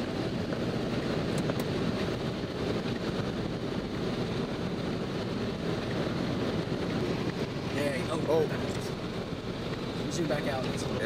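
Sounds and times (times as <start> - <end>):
wind on microphone: 0.0 - 10.1
car road noise: 0.0 - 11.0.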